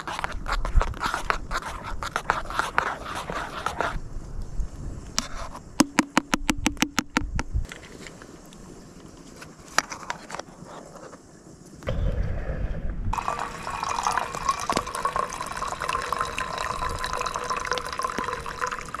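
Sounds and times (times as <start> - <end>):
coffee pouring into metal mug: 13.2 - 19.0.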